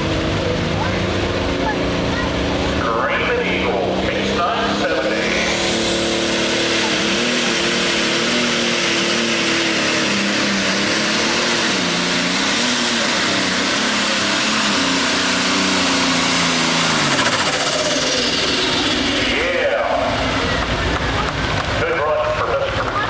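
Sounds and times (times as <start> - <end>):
tractor diesel engine at full throttle: 0.0 - 23.0.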